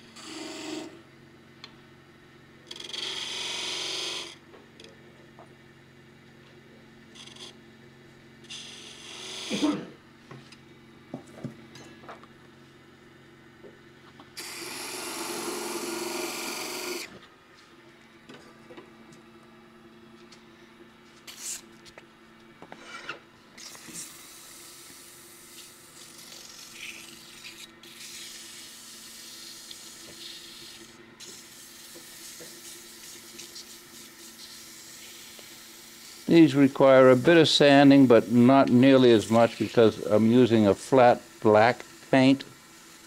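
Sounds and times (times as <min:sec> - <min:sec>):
wood lathe hum: 0:00.0 - 0:01.1, 0:02.7 - 0:04.4, 0:08.4 - 0:09.8, 0:14.4 - 0:17.3, 0:22.8 - 0:43.0.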